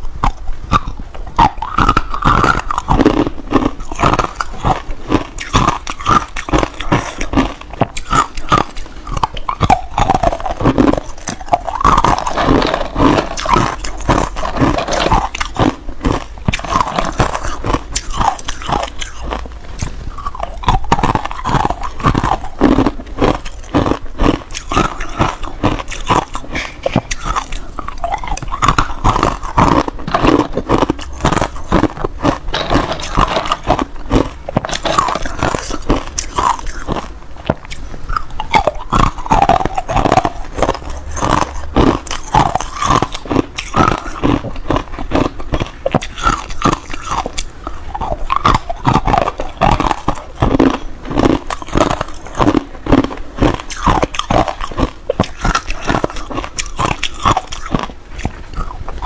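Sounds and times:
ice being chewed: 0.0 - 59.0.

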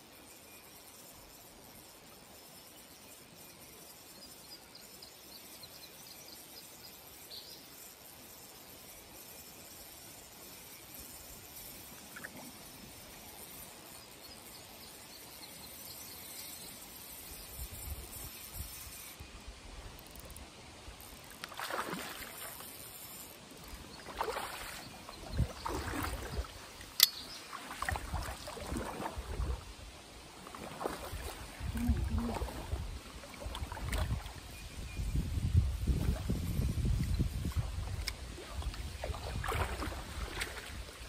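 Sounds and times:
water splashing: 21.3 - 22.9, 23.9 - 29.7, 30.4 - 34.4, 37.5 - 41.0.

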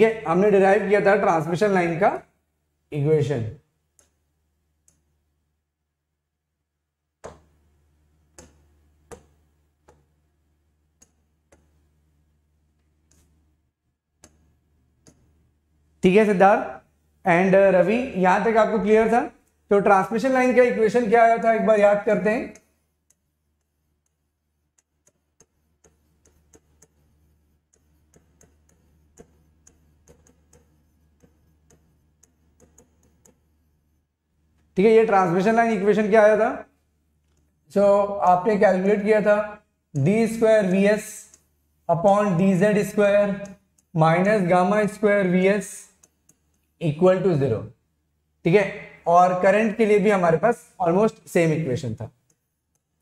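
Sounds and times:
stylus tapping on whiteboard: 7.2 - 7.6, 8.3 - 10.2, 11.0 - 11.8, 23.1 - 34.0
taps on touchscreen: 7.2 - 7.6, 8.3 - 10.1, 11.0 - 11.8.

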